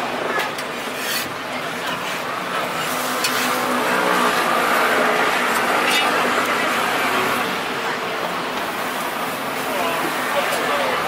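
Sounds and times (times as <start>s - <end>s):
metal utensils clinking on griddle: 0.5s - 3.6s, 5.8s - 6.2s.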